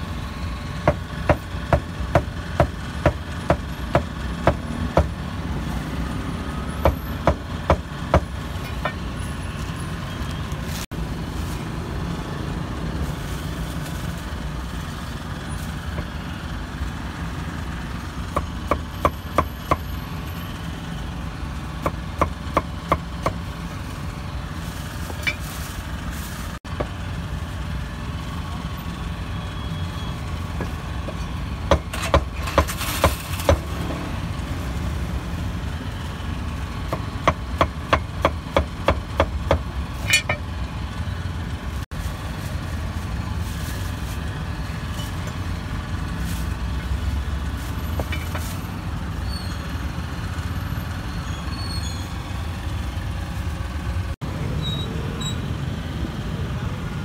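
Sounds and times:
street traffic rumble: 0.0s - 57.0s.

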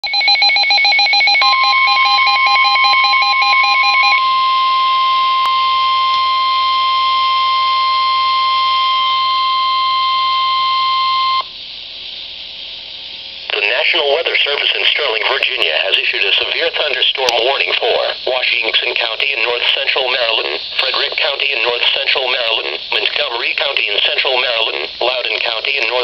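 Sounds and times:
rapid pulsing alert beeps: 0.0s - 4.2s
steady alarm tone: 0.0s - 11.5s
radio hiss: 11.5s - 26.0s.

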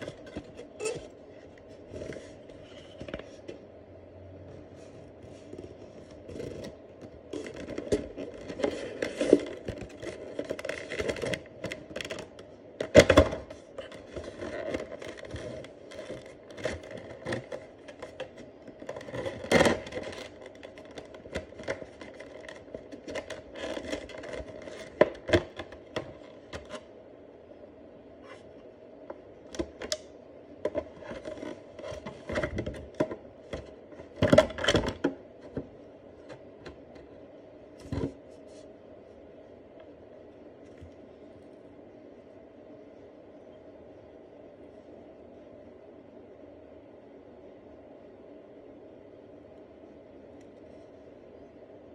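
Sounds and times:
plastic packaging clicks and rustles: 5.5s - 26.9s, 29.5s - 37.1s.

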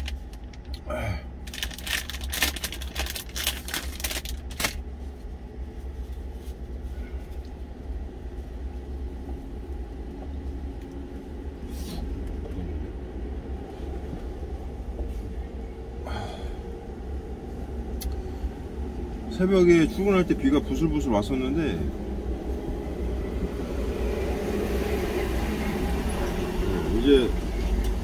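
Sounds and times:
snack wrapper crinkling: 0.0s - 0.8s, 1.4s - 4.8s
low vehicle rumble: 0.0s - 28.0s.

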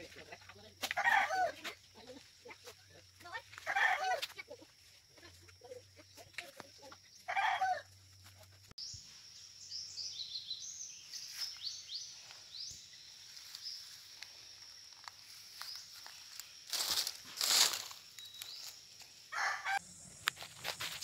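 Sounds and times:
small birds chirping: 4.4s - 20.6s.

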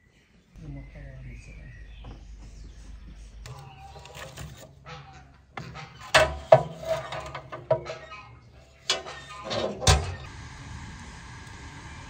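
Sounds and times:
metal clanks and scrapes: 3.5s - 10.3s.

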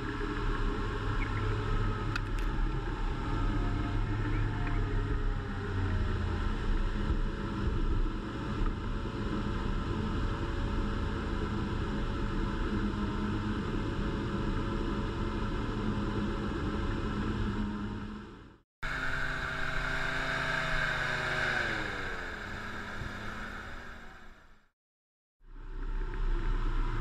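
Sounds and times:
truck engine running: 18.8s - 24.7s.

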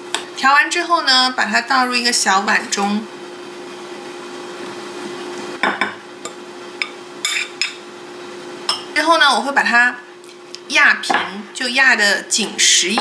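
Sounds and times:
spoon scraping a glass bowl: 7.3s - 7.8s.

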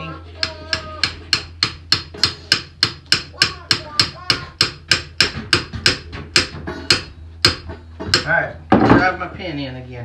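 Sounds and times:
hammer striking steel pin: 0.4s - 8.3s.

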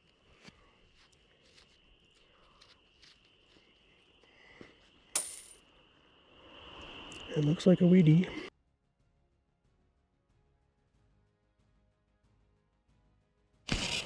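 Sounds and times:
gloved hands rustling in dirt: 0.0s - 4.8s.

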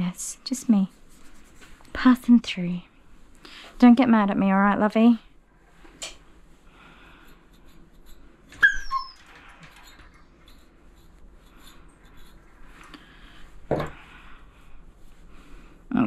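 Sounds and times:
dog yelping: 8.6s - 9.3s
tool clunk on table: 13.7s - 14.0s.

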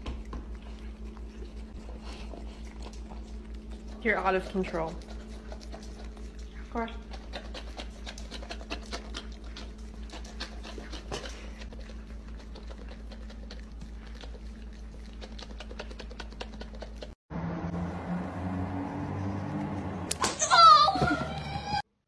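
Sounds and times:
low electrical hum: 0.0s - 17.1s
dog chewing and lip smacking: 0.0s - 17.2s.

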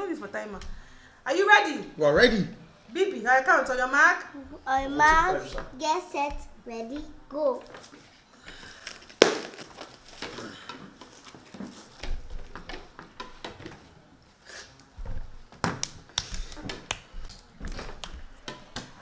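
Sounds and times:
plastic wrap crinkling: 8.7s - 12.7s
dough squishing: 14.6s - 19.0s.

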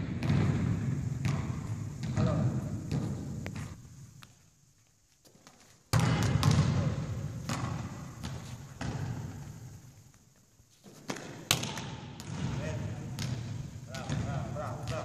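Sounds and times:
volleyballs hit and bouncing: 0.0s - 4.3s, 5.3s - 9.8s, 10.8s - 15.0s.

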